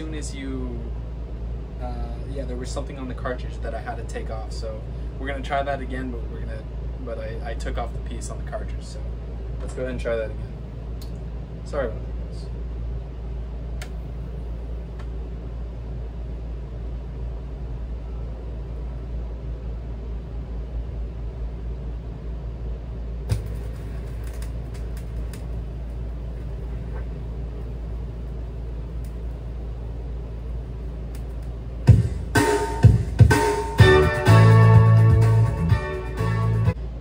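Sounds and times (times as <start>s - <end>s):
speaker hum: 0.0s - 37.0s
guitar music from record: 31.9s - 36.8s.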